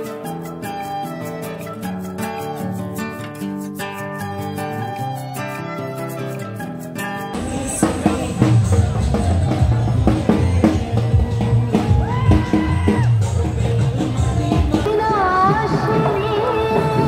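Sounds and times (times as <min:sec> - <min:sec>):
soft instrumental music: 0:00.0 - 0:17.0
person singing: 0:07.2 - 0:17.0
music with heavy drum beat: 0:07.4 - 0:17.0.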